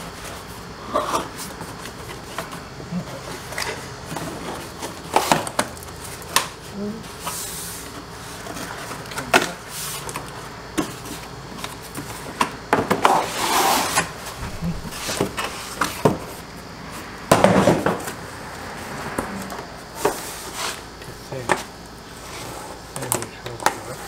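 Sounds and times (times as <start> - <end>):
rough scraping rustles: 13.1 - 17.1, 19.2 - 21.0.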